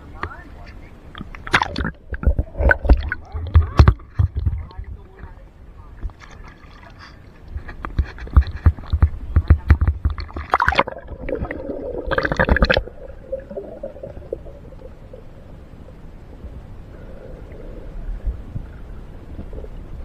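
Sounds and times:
river water splashing and gurgling: 10.0 - 15.8.

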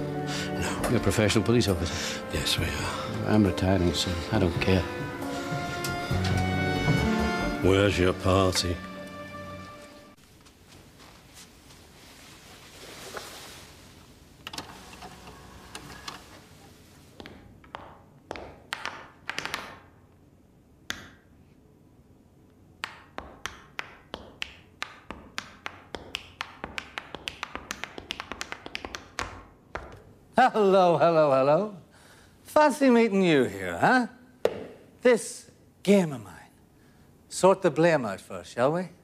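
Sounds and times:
tap shoes on hard floor: 5.7 - 7.2, 17.2 - 19.8, 23.2 - 30.1, 34.4 - 34.8.

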